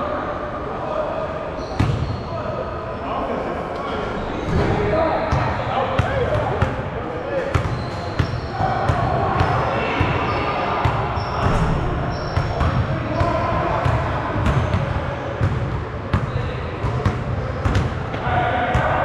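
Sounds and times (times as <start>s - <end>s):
players' voices: 0.0s - 19.0s
basketball bouncing on gym floor: 13.8s - 18.0s.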